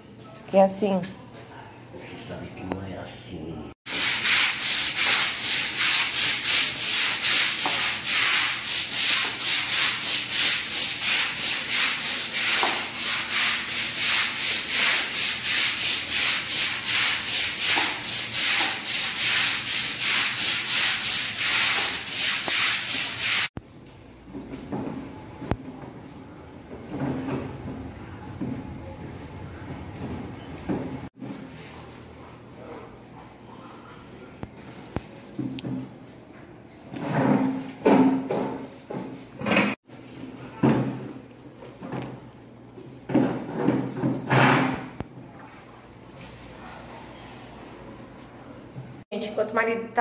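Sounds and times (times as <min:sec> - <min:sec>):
brush scrubbing wet tiled floor: 0:03.9 - 0:23.5.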